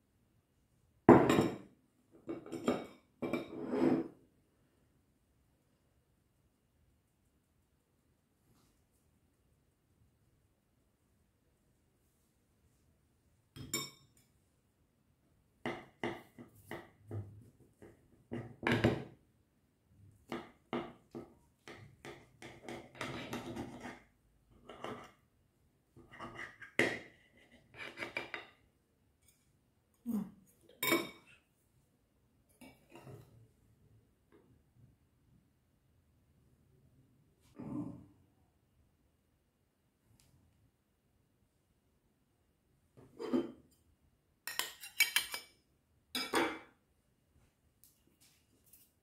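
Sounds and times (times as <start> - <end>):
metal utensils clinking on ceramic: 30.8 - 31.4, 44.5 - 45.6, 46.2 - 46.7.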